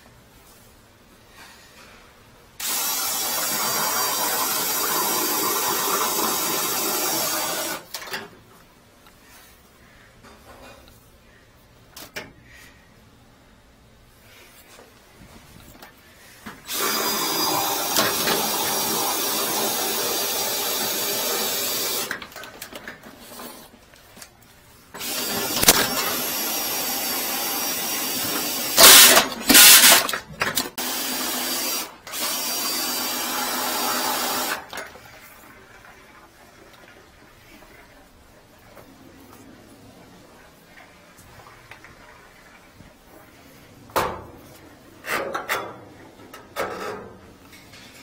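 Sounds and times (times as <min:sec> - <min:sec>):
drain cleaner cable whipping: 0:24.9 - 0:30.8.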